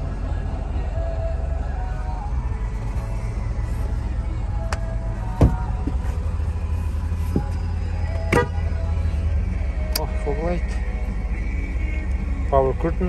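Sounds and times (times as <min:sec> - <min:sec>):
diesel engine idling: 0:00.0 - 0:13.0
thump: 0:05.4 - 0:06.0.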